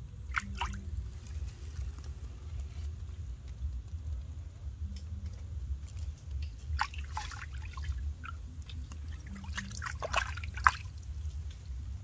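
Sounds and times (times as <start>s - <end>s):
water splashing in a basin: 0.2s - 1.1s, 5.9s - 12.0s
water dripping: 5.8s - 12.0s.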